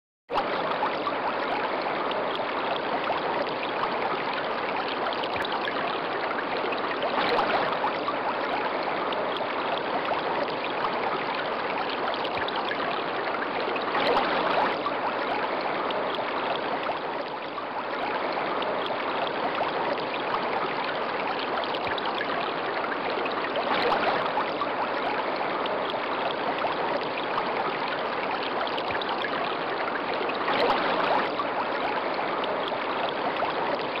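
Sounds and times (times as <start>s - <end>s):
water splashing into pond: 13.9s - 15.5s, 23.6s - 27.4s, 30.4s - 34.0s.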